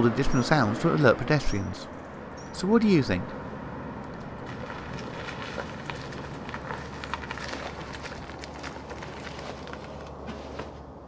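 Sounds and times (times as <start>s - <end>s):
tyres crackling over dry leaves: 4.0s - 10.9s.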